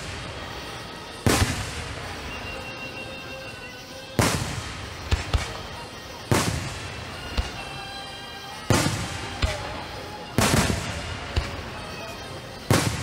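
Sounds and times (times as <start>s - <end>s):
fireworks booming: 0.0s - 2.7s, 4.2s - 7.7s, 8.6s - 13.0s
sharp firework crack: 0.0s - 2.7s, 4.1s - 7.8s, 8.6s - 11.9s, 12.5s - 13.0s.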